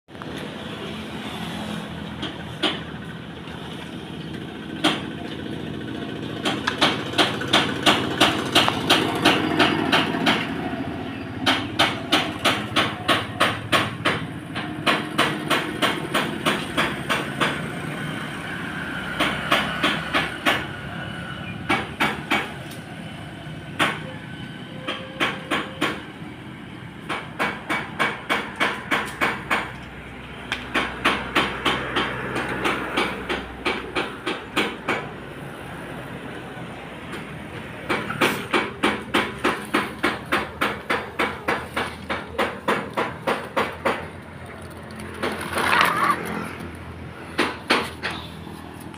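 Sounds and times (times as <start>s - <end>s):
sharp knocks: 37.8s - 44.1s.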